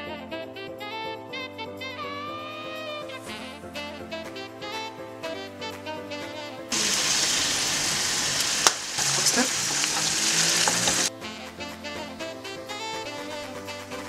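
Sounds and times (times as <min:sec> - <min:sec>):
music: 0:00.0 - 0:14.0
mushrooms sizzling in a frying pan: 0:06.7 - 0:11.1
spatula knocking pan: 0:08.6 - 0:11.1.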